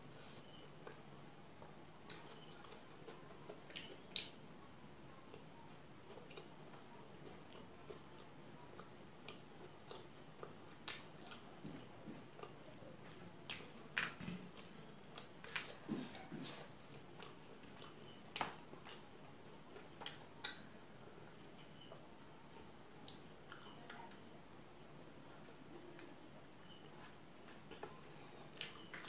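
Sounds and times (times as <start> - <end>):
person chewing: 7.2 - 11.4.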